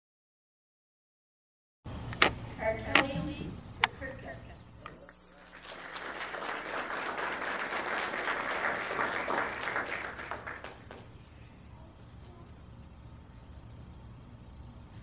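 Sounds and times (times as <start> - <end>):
crowd applauding: 5.3 - 11.2.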